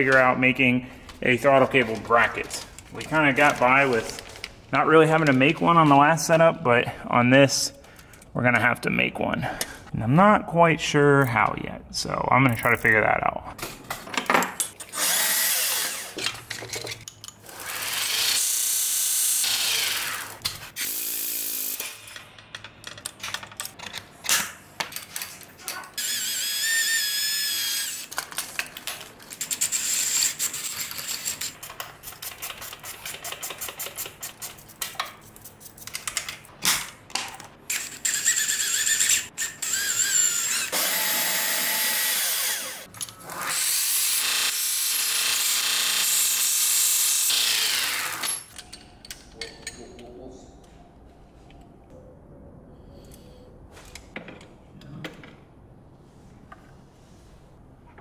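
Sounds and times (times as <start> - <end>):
tools knocking and clattering: 13.6 - 14.9, 16.2 - 17.4, 54.1 - 55.4
belt grinder on metal: 14.9 - 16.2, 17.4 - 22.0, 37.7 - 48.5.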